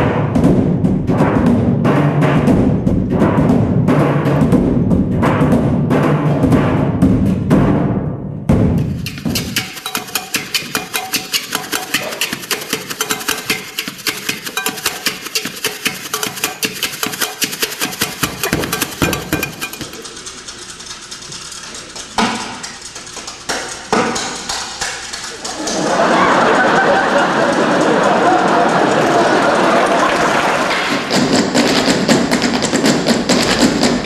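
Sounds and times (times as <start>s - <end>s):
plastic bag percussion: 8.5s - 34.0s
audience applause: 25.1s - 31.2s.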